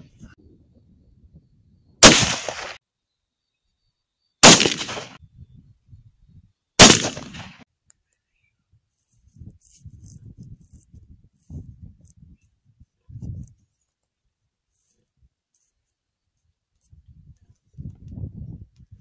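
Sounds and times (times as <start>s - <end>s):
rifle shots: 2.0s - 2.8s, 4.4s - 5.2s, 6.8s - 7.6s.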